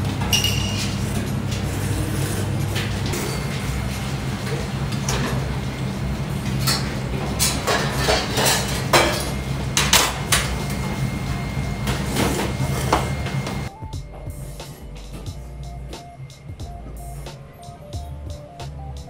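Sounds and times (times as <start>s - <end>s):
bowls and chopsticks clinking: 0.2s - 1.0s, 6.6s - 10.6s.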